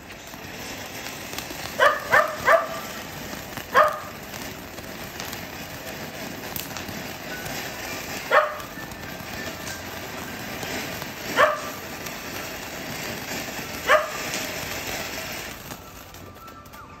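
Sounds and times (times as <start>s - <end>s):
firework hissing: 0.0s - 17.0s
dog barking: 1.8s - 2.9s, 3.7s - 4.2s, 8.3s - 8.7s, 11.3s - 11.8s, 13.8s - 14.3s.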